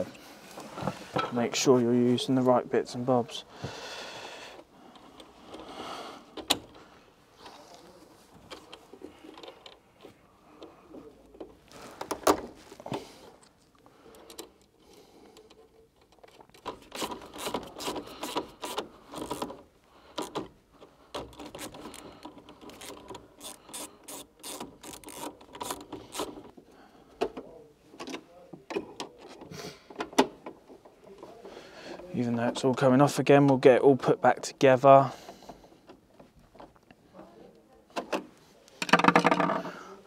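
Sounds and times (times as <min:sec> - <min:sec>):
small parts rattling and scraping: 0:15.4 - 0:26.6, 0:38.0 - 0:40.0
screwdriver working terminal screws: 0:16.5 - 0:19.6, 0:22.6 - 0:26.4.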